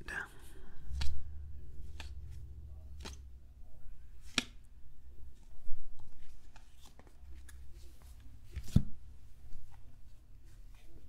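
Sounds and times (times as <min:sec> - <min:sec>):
cards flicking and sliding: 0:00.8 - 0:01.2, 0:01.8 - 0:03.3, 0:04.2 - 0:04.6.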